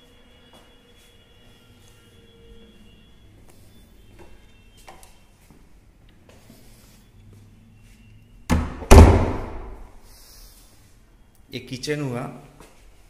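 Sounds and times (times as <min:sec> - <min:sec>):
door slamming shut: 0:08.5 - 0:09.9.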